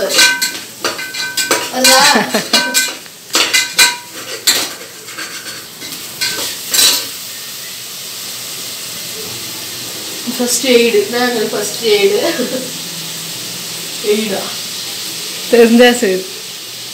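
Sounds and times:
metal ladle scraping a pot: 0:00.0 - 0:07.0
faint sizzle of frying: 0:00.0 - 0:16.9.

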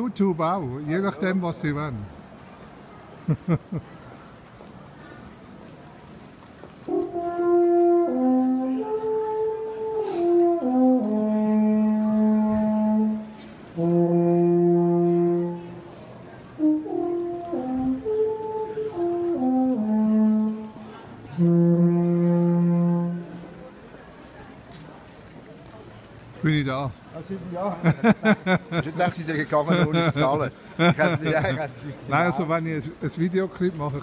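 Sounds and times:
alphorn playing slow melody: 0:06.8 - 0:23.6.

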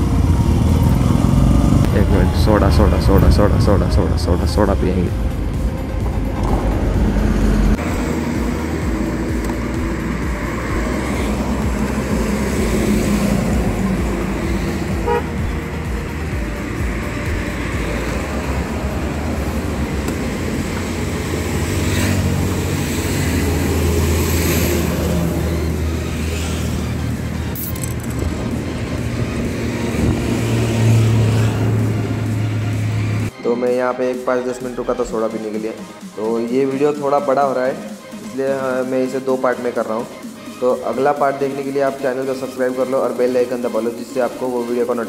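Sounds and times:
highway traffic rumble: 0:00.0 - 0:33.4.

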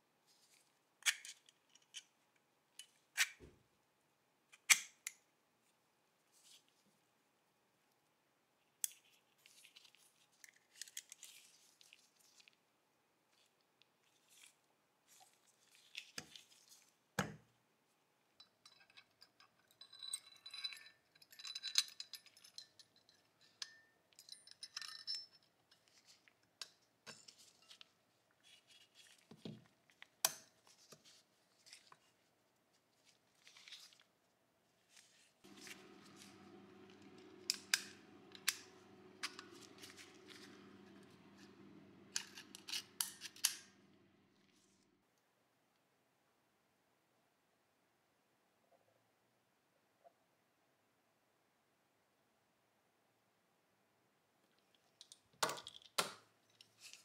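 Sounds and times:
metal clicks and scrapes: 0:35.5 - 0:43.9
steady low hum: 0:35.5 - 0:44.8.

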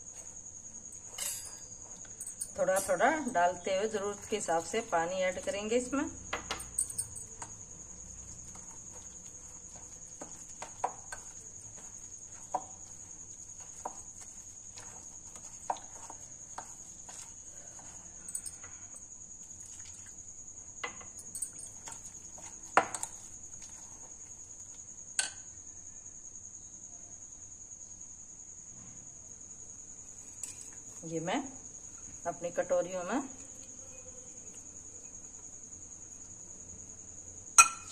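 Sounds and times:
spoon scraping batter in bowl: 0:00.1 - 0:20.2, 0:21.2 - 0:24.8
spoon clinking against glass: 0:01.1 - 0:03.0, 0:06.4 - 0:07.5, 0:37.6 - 0:37.9.

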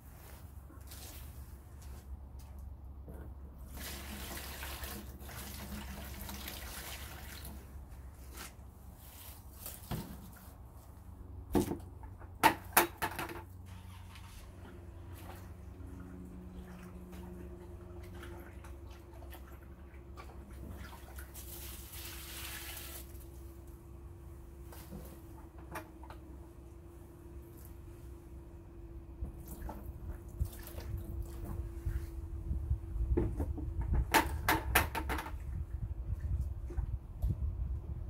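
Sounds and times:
water splashing and running: 0:03.7 - 0:07.9, 0:15.2 - 0:23.4.

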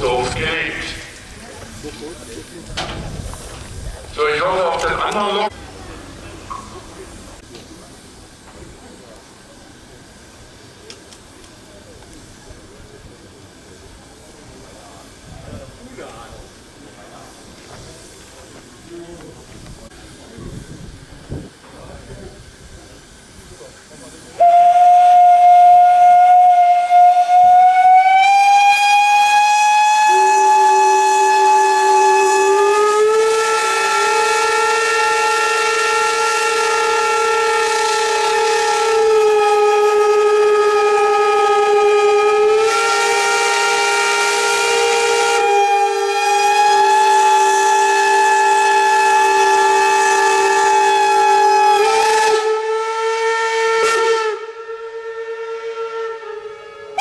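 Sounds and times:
steam locomotive whistles blowing: 0:24.3 - 0:57.0.

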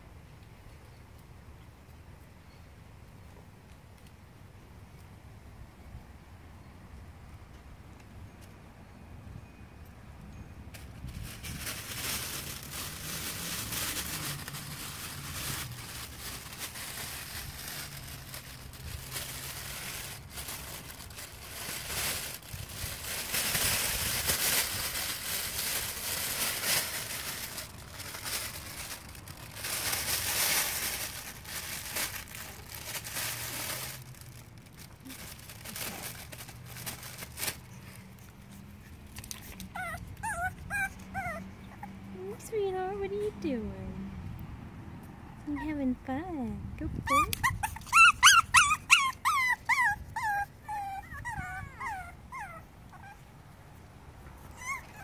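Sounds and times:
fabric tunnel rustling and crackling: 0:11.0 - 0:38.0
puppy whimpering and yipping: 0:39.5 - 0:42.1, 0:46.9 - 0:53.3, 0:54.4 - 0:55.0.

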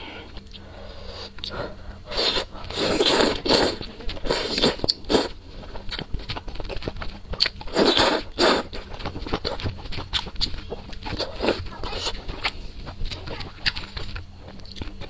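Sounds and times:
person slurping noodles: 0:02.0 - 0:05.3, 0:07.7 - 0:08.8
wet chewing and crunchy bites: 0:02.2 - 0:15.0.

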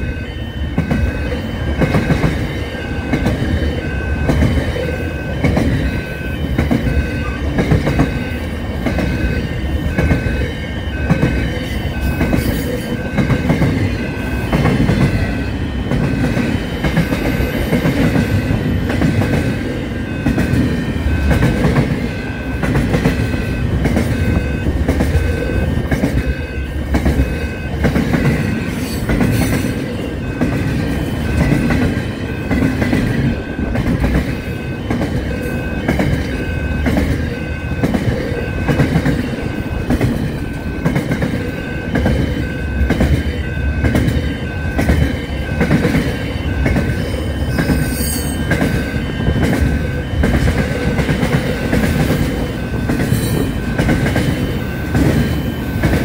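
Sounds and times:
clickety-clack over rail joints: 0:00.0 - 0:56.0
train wheels rumbling: 0:00.0 - 0:56.0
high wheel squeal: 0:43.4 - 0:50.7.

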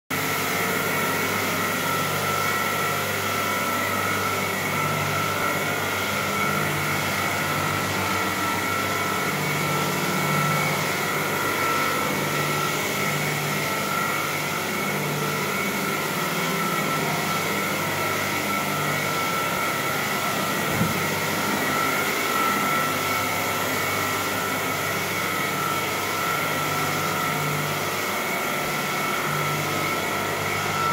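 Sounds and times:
floor scrubber motor whine: 0:00.2 - 0:30.9.

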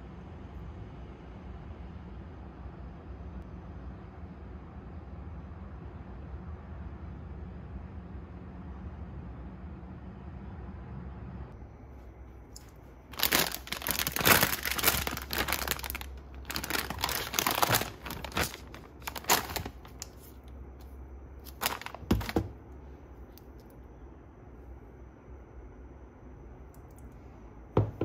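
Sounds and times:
plastic bags crinkling: 0:12.6 - 0:20.4, 0:21.4 - 0:22.5
knock: 0:27.8 - 0:28.0.

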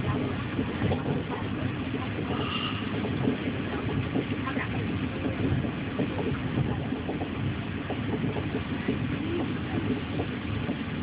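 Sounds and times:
train carriage low rumble: 0:00.0 - 0:11.0.

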